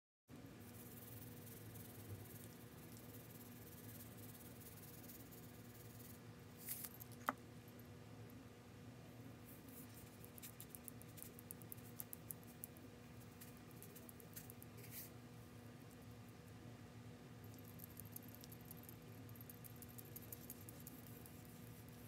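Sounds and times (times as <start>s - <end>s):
low steady hum: 0.3s - 22.0s.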